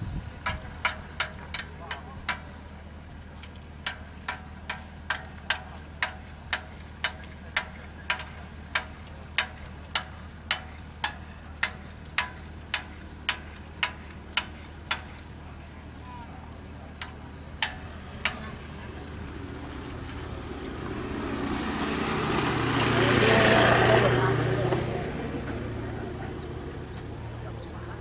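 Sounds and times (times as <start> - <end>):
steady low hum: 0.0 - 28.0
sharp metallic strikes ringing: 17.0 - 18.8.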